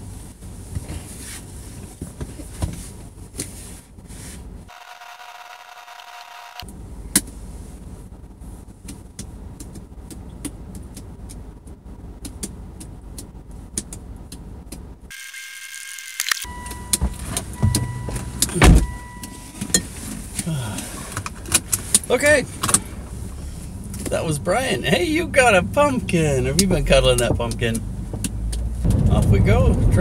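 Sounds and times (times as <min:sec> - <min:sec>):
car interior low rumble: 0:00.0 - 0:04.7, 0:06.6 - 0:15.1, 0:16.5 - 0:30.0
electronic warning tone: 0:15.1 - 0:19.5
car door shutting thump: 0:16.6 - 0:19.1.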